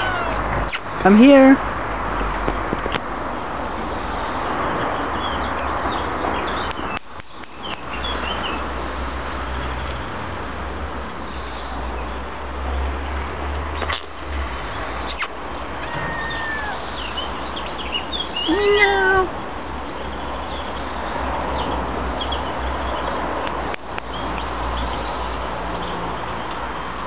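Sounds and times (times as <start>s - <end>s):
kitten meowing: 0.0s - 0.5s, 15.8s - 16.9s.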